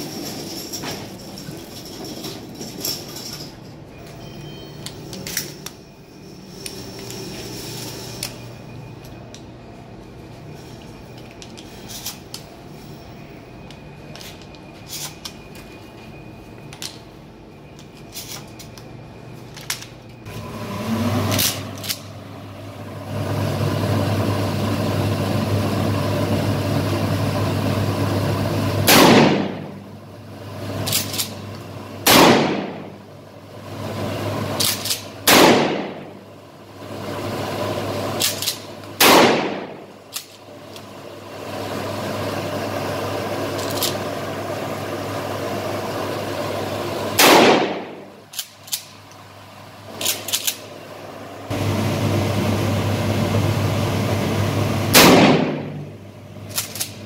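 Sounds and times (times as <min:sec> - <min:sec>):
shells loading clicks: 0:21.3 - 0:22.1, 0:30.8 - 0:31.4, 0:34.6 - 0:35.5, 0:38.2 - 0:39.3, 0:40.1 - 0:40.9, 0:43.5 - 0:44.0, 0:48.3 - 0:49.2, 0:50.0 - 0:50.7, 0:56.5 - 0:57.0
shotgun shots echoing: 0:28.9 - 0:29.7, 0:32.0 - 0:33.0, 0:35.3 - 0:36.0, 0:39.0 - 0:39.8, 0:47.2 - 0:48.0, 0:54.9 - 0:55.8.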